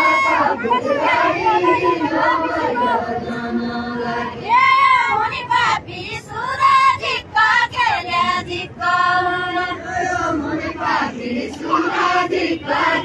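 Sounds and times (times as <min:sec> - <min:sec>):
women singing in unison: 0:00.0 - 0:13.0.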